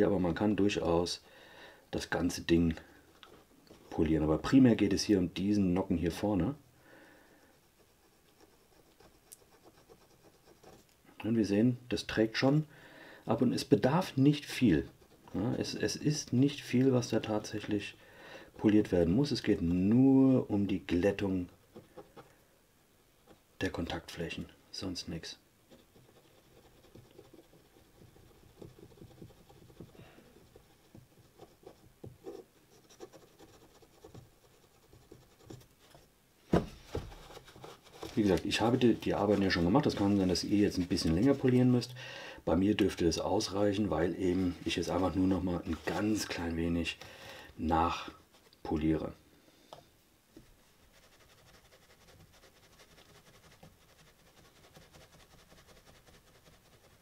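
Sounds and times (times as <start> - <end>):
cotton swab rubbing on metal: 7.4 - 11.0, 25.7 - 36.0, 37.1 - 41.9, 50.4 - 57.0.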